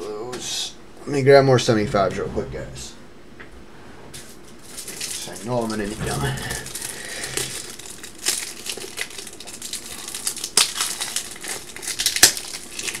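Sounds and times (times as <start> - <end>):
plastic crinkling and rustling: 4.2 - 13.0.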